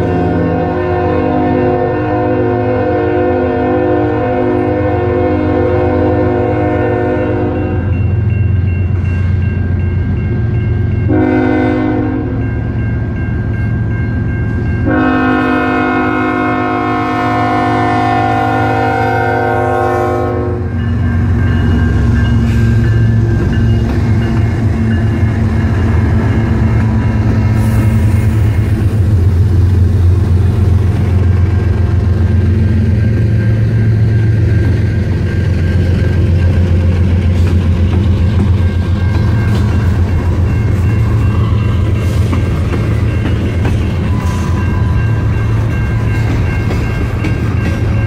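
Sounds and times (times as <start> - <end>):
locomotive engine rumble: 7.0 - 48.0
freight cars rolling on rails: 12.4 - 48.0.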